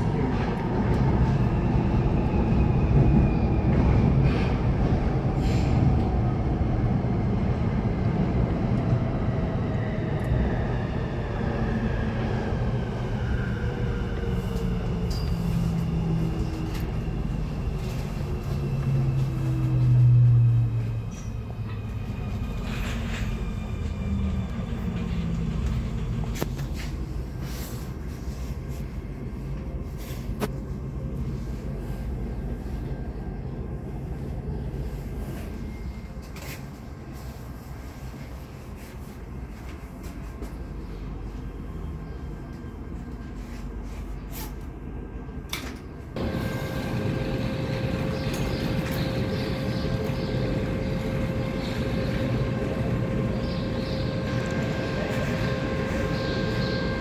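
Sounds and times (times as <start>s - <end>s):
wheels rumbling on rail: 0.0s - 57.0s
low hum: 45.0s - 57.0s
train motor whine: 46.2s - 57.0s.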